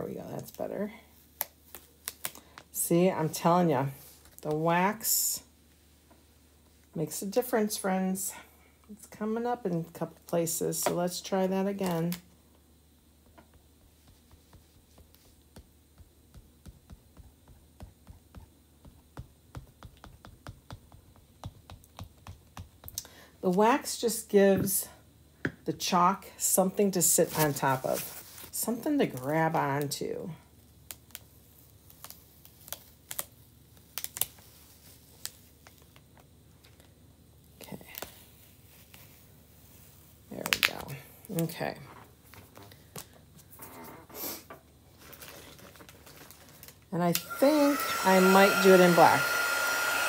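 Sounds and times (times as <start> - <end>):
plastic transfer peeling crackles: 1.4 - 2.7, 11.8 - 12.3, 30.8 - 36.9, 44.9 - 46.9.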